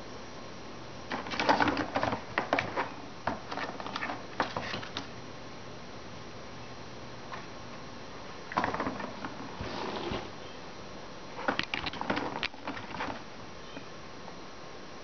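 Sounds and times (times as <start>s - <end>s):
ball rattling along plastic track: 1.1s - 5.1s, 11.4s - 13.3s.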